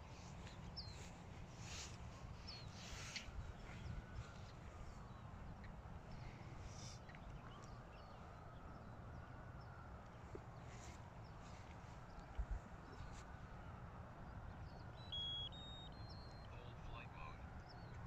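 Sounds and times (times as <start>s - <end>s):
high bird chirps: 14.9s - 16.8s.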